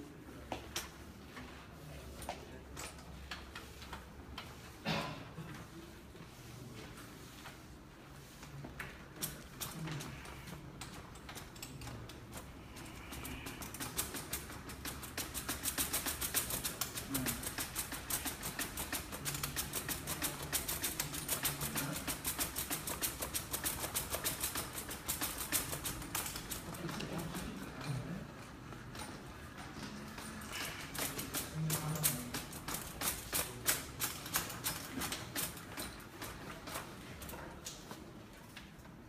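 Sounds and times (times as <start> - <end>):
roller cart rattling across floor: 11.0 - 37.5.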